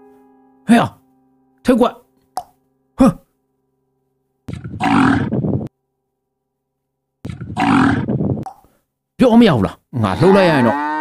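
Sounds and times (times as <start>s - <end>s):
bull bellowing: 10.1s - 11.0s.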